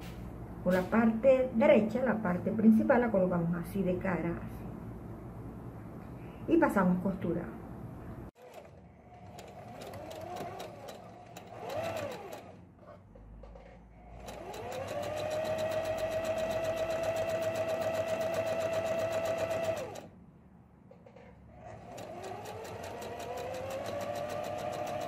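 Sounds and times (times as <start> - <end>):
sewing machine stitching: 8.4 - 20.1, 21.0 - 25.0.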